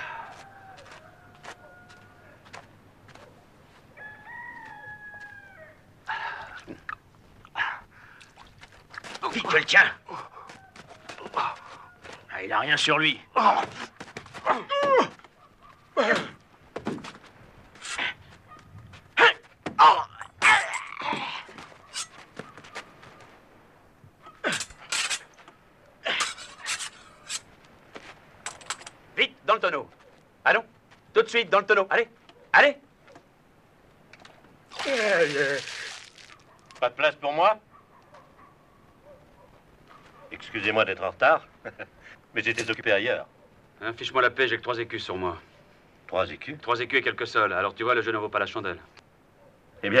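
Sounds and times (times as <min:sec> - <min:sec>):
men grunting and gasping: 0:00.0 - 0:00.6, 0:06.0 - 0:06.9, 0:10.0 - 0:11.9, 0:16.0 - 0:16.5, 0:19.2 - 0:21.8, 0:24.4 - 0:25.0, 0:26.0 - 0:27.2
rooster crowing: 0:00.0 - 0:02.7, 0:03.9 - 0:05.9, 0:10.4 - 0:12.3.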